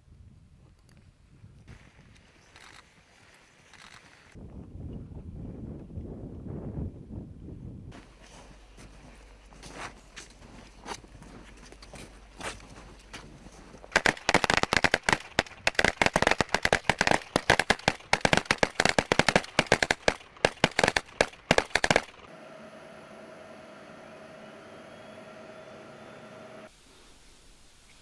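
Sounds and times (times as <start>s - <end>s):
rifle fire bursts: 13.9s - 22.3s.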